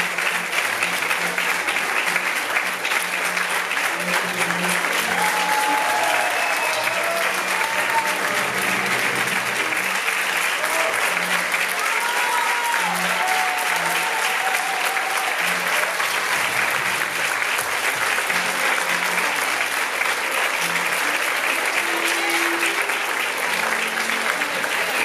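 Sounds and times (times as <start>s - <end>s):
audience applauding: 0.0s - 25.0s
music playing: 0.0s - 25.0s.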